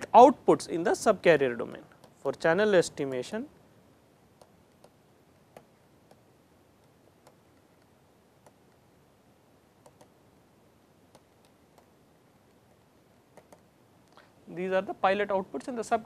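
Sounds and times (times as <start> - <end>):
stylus tapping on pen tablet: 4.4 - 8.9, 11.1 - 13.7.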